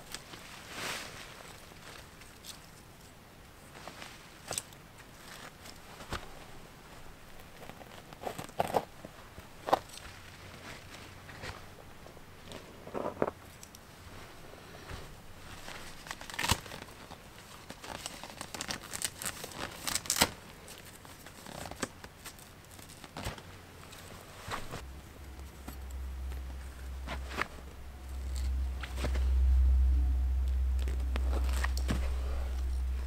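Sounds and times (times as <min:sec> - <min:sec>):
tent fabric rustling and crinkling: 0:00.0 - 0:30.0
low rumble: 0:24.6 - 0:33.0.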